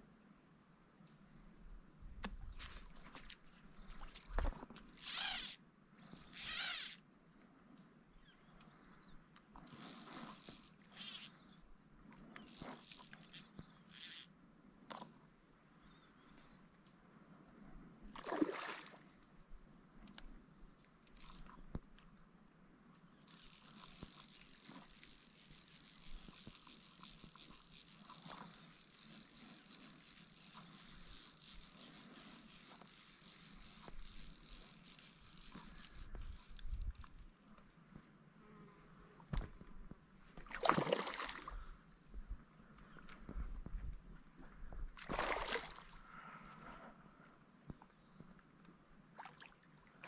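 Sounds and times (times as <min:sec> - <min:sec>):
fishing reel drag buzzing: 0:02.5 - 0:07.0, 0:09.6 - 0:11.6, 0:12.2 - 0:14.4, 0:21.0 - 0:21.7, 0:23.2 - 0:37.6.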